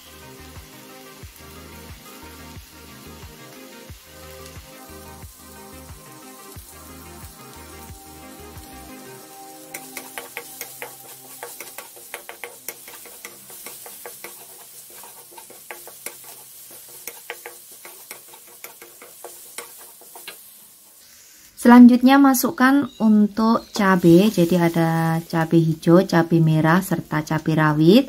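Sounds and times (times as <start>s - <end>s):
soft background music: 0.0s - 20.5s, 21.6s - 28.0s
faint sizzle: 0.0s - 28.0s
spatula scraping a wok: 9.6s - 21.6s, 23.6s - 25.3s.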